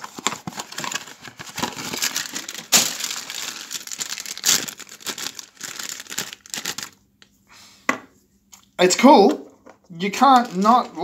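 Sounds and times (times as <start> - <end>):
foil packaging crinkling: 0.0 - 7.0, 9.9 - 11.0.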